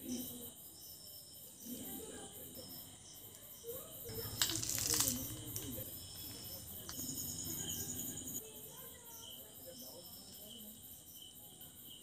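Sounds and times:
crickets chirping: 0.0 - 12.0
powder scattering rustle: 4.1 - 7.6.

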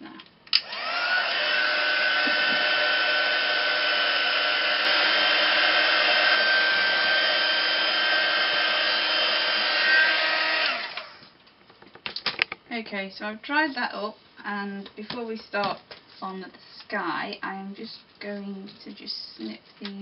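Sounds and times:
heat tool fan whine: 0.5 - 11.3.

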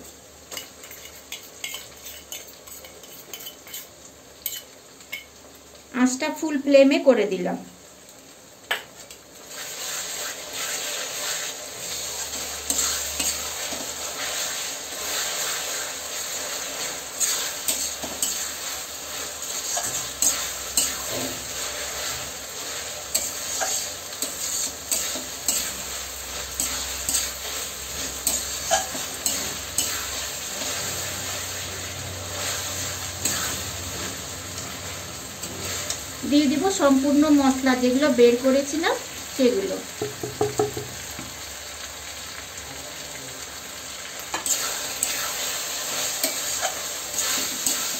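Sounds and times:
food sizzling in oil: 0.0 - 47.9
spatula scraping pan: 0.5 - 3.9, 9.5 - 34.2, 44.3 - 47.9.

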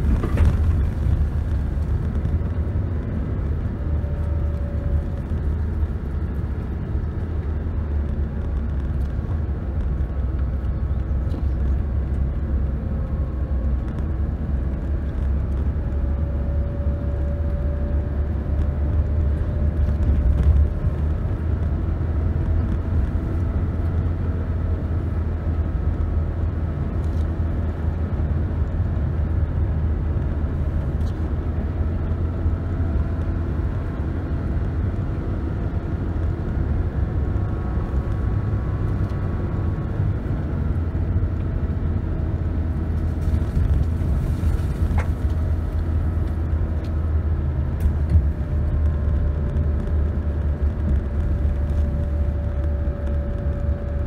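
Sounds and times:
car engine and tyres rumble: 0.0 - 54.0
faint engine hum: 0.0 - 54.0.

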